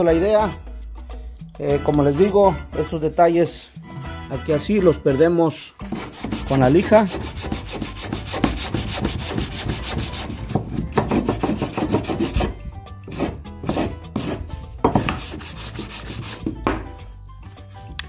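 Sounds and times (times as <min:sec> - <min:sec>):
sandpaper sanding wood: 0:05.8 - 0:14.4, 0:15.0 - 0:16.6.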